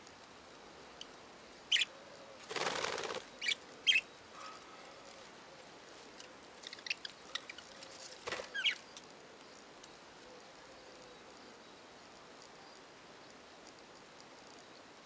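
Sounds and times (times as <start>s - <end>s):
wings flapping: 2.4s - 3.6s, 8.1s - 8.8s
budgerigars chirping: 3.4s - 4.1s, 8.5s - 8.8s.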